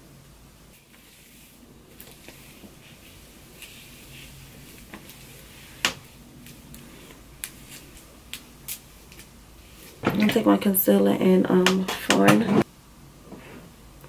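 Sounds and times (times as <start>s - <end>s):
hands rustling through hair: 0.8s - 10.0s.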